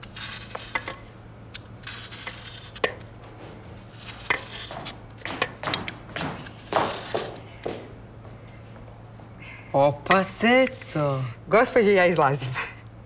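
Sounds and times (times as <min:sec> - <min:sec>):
knife peeling and cutting apple: 0:00.0 - 0:03.1, 0:03.8 - 0:05.0.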